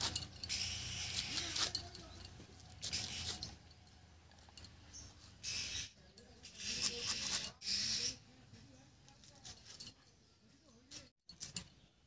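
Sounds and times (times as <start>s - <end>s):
blade slicing leaves: 0.0s - 3.5s
handling of leaves: 0.0s - 3.6s.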